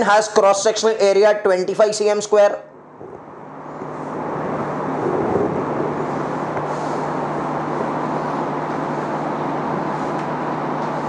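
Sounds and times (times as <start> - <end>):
low hum: 2.7 - 11.0
steady rushing noise: 2.8 - 11.0.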